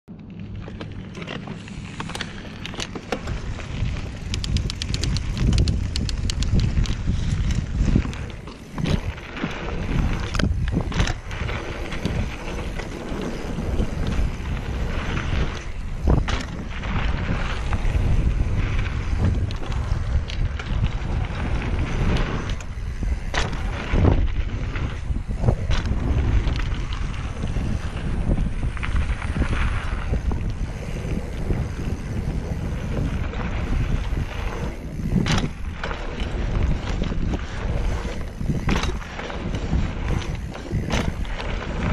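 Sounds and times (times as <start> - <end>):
bike ride rumble: 0.0 - 41.9
bike knocks and rattles: 0.1 - 41.9
wind buffeting microphone: 1.6 - 41.9.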